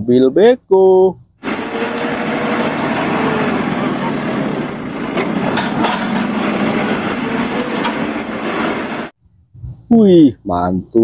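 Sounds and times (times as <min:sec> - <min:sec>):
diesel engine running: 0:01.4 - 0:09.2.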